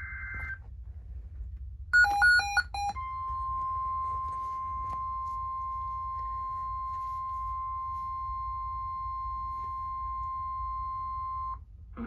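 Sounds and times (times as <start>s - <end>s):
steady alarm tone from speaker: 0.0s - 0.6s.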